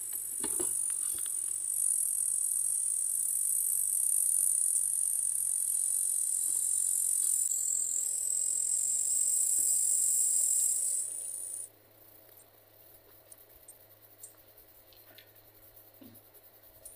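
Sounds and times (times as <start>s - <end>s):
katydid high-pitched buzz: 0.0s - 11.7s.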